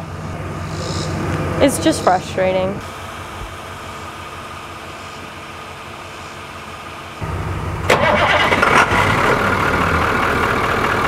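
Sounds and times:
bus engine running: 0.0 - 11.0
starter motor cranking: 7.9 - 9.1.

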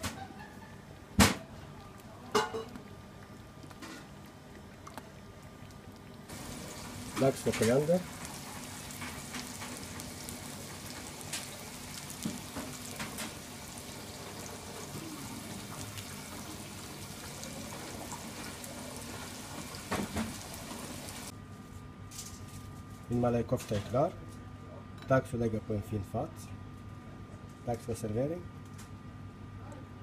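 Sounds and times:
sauce simmering in a pan: 5.5 - 21.3.

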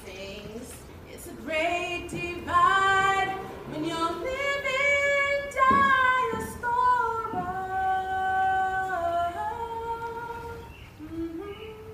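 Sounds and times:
woman singing softly: 0.0 - 11.9.

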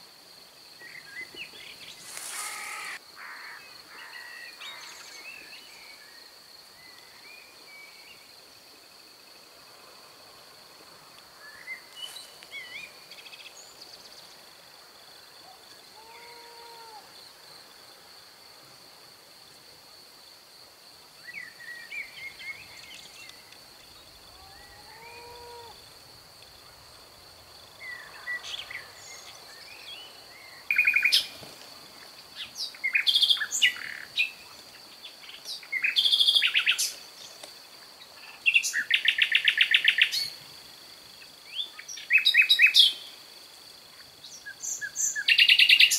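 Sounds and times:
songbirds singing and chirping: 21.2 - 40.4, 44.0 - 45.9.

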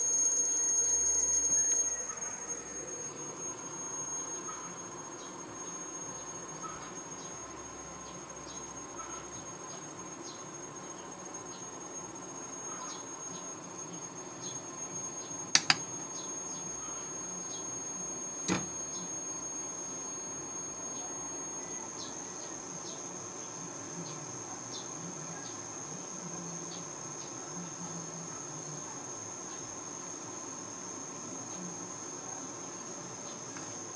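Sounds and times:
high-pitched electronic whine: 0.0 - 27.2
sharp clicks: 15.5 - 15.9.

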